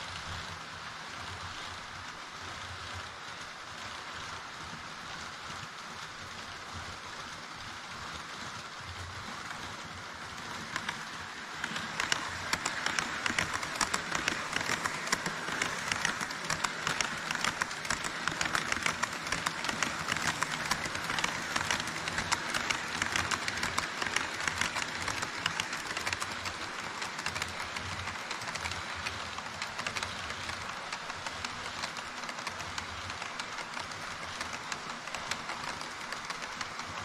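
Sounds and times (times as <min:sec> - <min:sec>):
model train wheels whirring: 0:00.0 - 0:37.0
wheels clicking over rail joints: 0:00.0 - 0:37.0.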